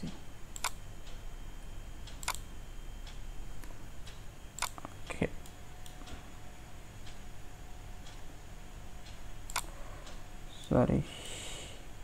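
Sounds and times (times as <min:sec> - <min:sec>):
faint steady hum: 0:00.0 - 0:12.0
keyboard and mouse clicks: 0:04.6 - 0:05.0.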